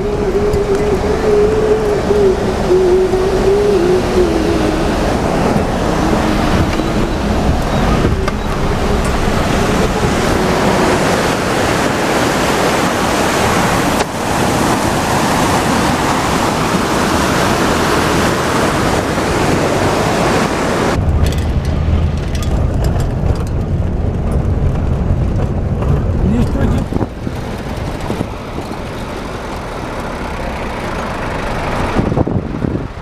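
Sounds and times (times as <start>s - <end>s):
vehicle engine and road noise: 0.0s - 33.0s
wind buffeting microphone: 0.0s - 33.0s
rattles: 21.0s - 31.9s.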